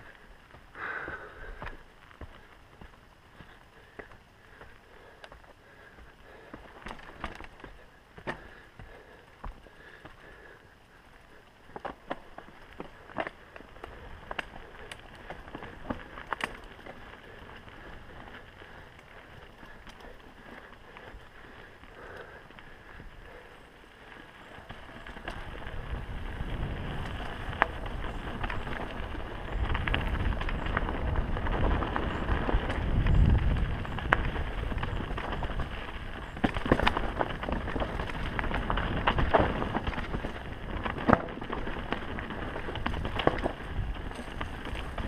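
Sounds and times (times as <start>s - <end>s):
bike rattling: 0.0s - 45.0s
bike knocking on rocks: 6.5s - 10.2s, 24.7s - 45.0s
tyres rumbling on dirt: 11.7s - 45.0s
wind on microphone: 25.1s - 45.0s.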